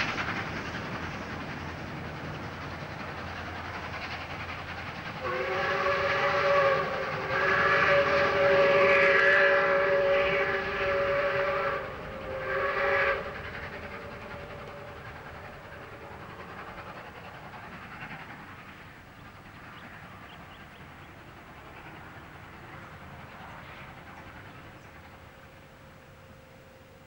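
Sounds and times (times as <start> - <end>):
faint train running noise: 0.0 - 27.0
steam locomotive whistle blasts: 5.2 - 16.1.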